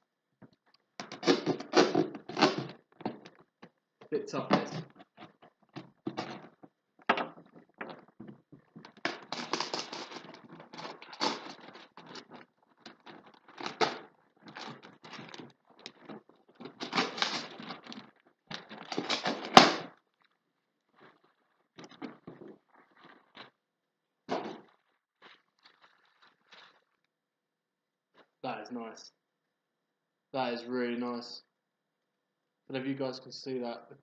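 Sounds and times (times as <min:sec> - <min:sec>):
cardboard parcel tearing: 0:01.0 - 0:03.2, 0:08.8 - 0:20.4.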